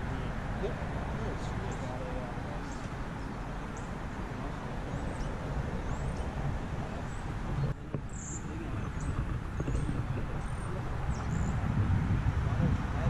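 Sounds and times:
steady low rumble: 0:03.4 - 0:13.0.

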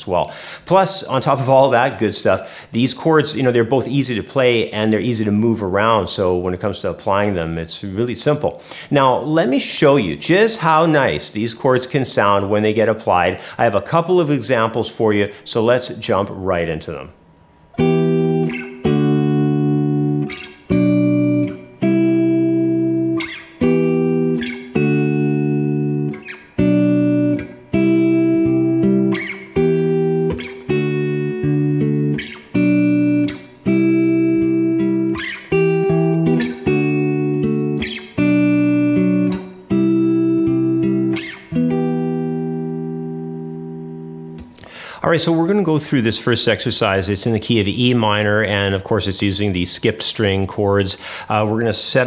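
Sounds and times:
fingerpicked clean electric guitar: 0:17.5 - 0:44.8.

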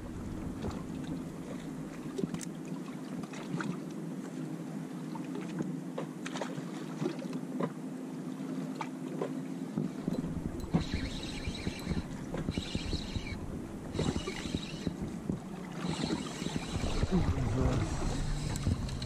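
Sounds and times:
outboard motor running: 0:00.0 - 0:03.5, 0:09.2 - 0:19.0
water slapping against hull: 0:00.0 - 0:04.4, 0:05.1 - 0:07.8, 0:08.6 - 0:19.0.

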